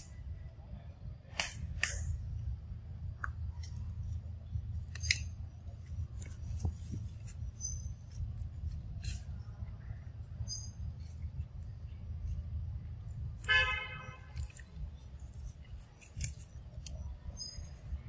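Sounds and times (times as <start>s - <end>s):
low forest rumble: 0.0s - 18.0s
sharp clicks and snaps: 1.3s - 2.1s, 4.8s - 5.4s, 14.3s - 17.6s.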